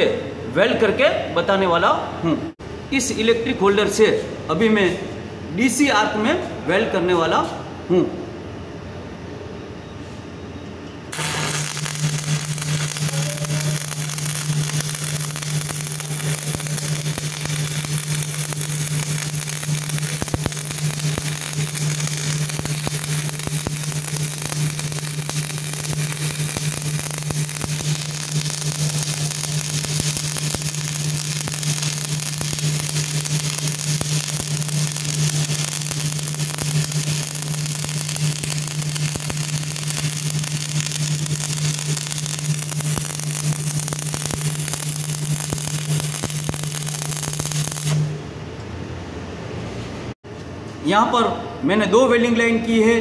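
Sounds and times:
low electrical hum: 0.0 - 53.0
welding arc crackling: 11.1 - 48.2.

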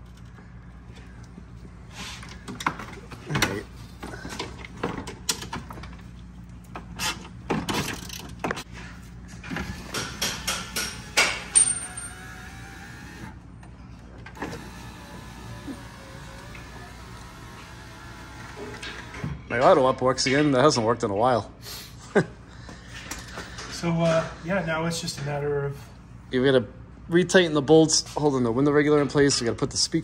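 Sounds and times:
power window motor whine: 12.1 - 13.4, 14.4 - 19.3.

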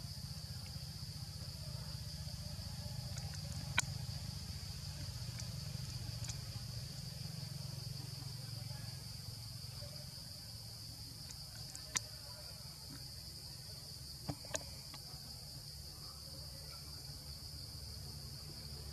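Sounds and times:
insects droning: 0.0 - 18.9
faint ticks: 3.0 - 4.0, 11.2 - 12.2.

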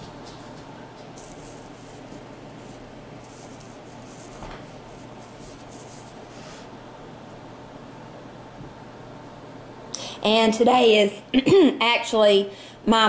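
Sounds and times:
fingertips brushing coarse fabric: 0.1 - 6.7.

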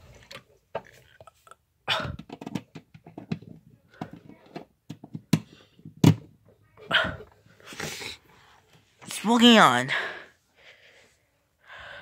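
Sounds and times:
handling clicks and knocks: 2.1 - 6.4.

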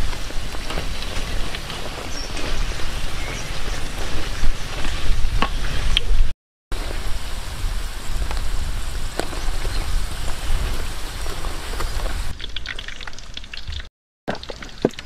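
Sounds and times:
hot oil sizzling in a wok: 6.8 - 13.8.

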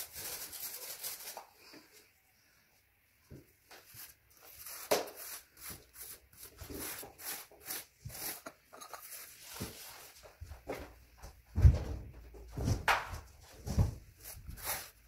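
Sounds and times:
paint brush scrubbing brick: 0.0 - 1.5, 3.8 - 10.2, 14.2 - 15.0.

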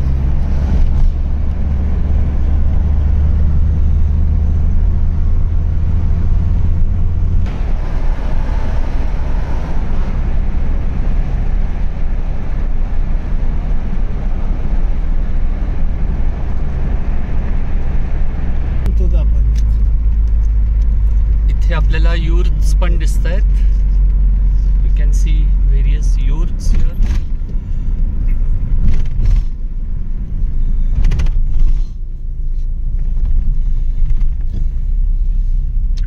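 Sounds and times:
strong low drone: 0.0 - 27.1
car engine and tyre rumble: 0.0 - 36.0.

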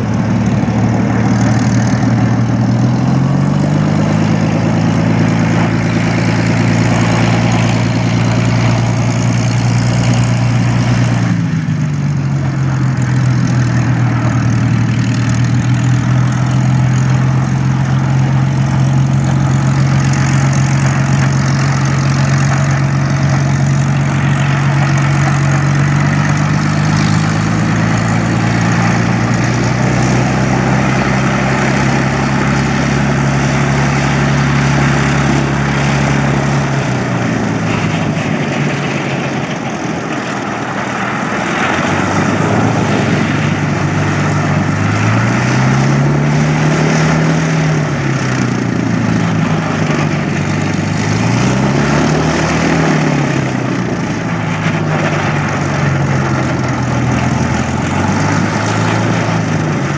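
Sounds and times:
aircraft engine running: 0.0 - 59.9.

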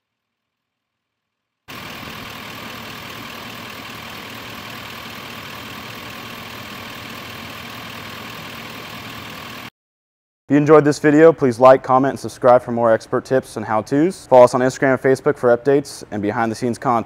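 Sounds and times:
diesel engine idling: 1.7 - 9.7.

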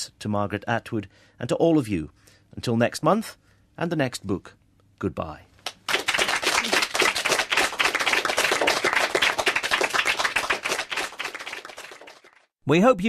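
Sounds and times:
people applauding: 5.7 - 12.5.

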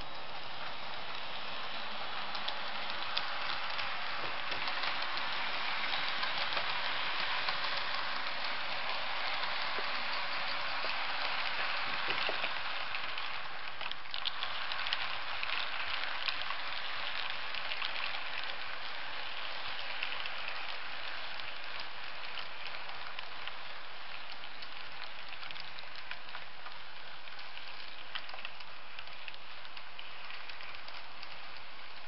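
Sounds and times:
model train wheels hissing on rail: 0.1 - 22.2.

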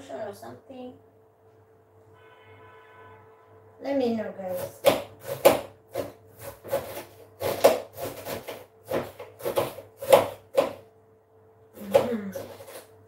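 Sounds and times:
knife chopping cabbage on board: 4.5 - 10.8, 11.8 - 13.0.

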